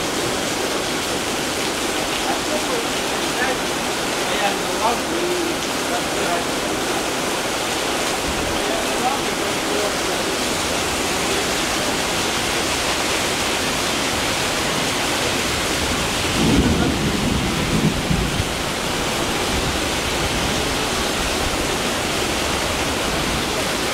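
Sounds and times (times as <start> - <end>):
heavy rain on road and awning: 0.0 - 23.9.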